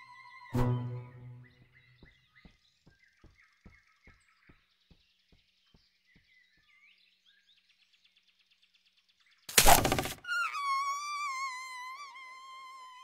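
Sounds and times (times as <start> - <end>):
bird chirps: 0.0 - 13.0.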